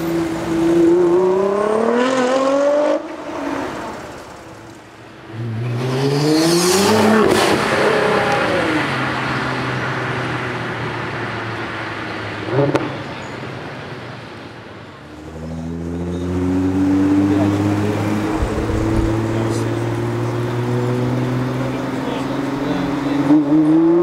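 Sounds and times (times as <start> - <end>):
car passing and driving away: 0.0 - 24.0
sports car engine accelerating: 15.1 - 24.0.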